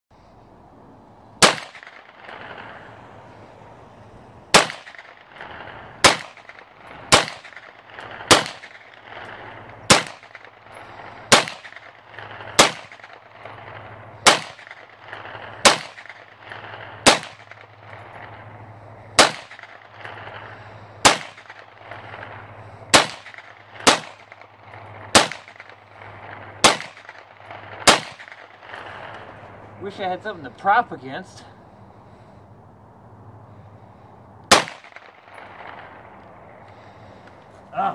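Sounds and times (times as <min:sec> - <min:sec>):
gunshots with short echo: 0:01.4 - 0:03.1, 0:04.5 - 0:18.5, 0:19.2 - 0:29.4, 0:34.5 - 0:37.0.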